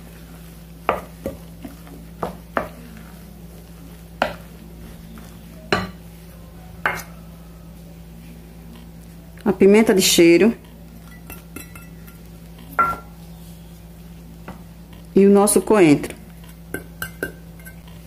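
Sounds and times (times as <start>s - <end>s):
wooden spoon stirring batter: 0.0s - 7.1s
spoon knocking glass bowl: 11.1s - 12.2s, 12.8s - 13.1s, 16.8s - 17.8s.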